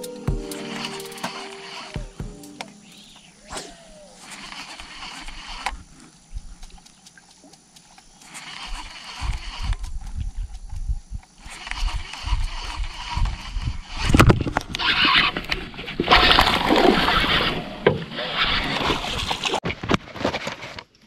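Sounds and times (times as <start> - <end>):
water splashing and sloshing: 11.5 - 19.7.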